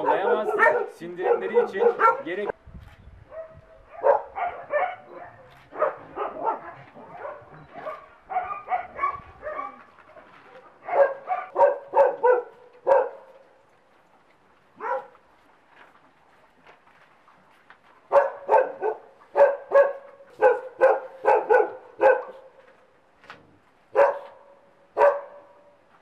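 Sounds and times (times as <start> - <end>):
dogs barking: 0.0 - 2.5, 3.3 - 13.4, 14.8 - 15.2, 18.1 - 22.6, 23.9 - 25.8.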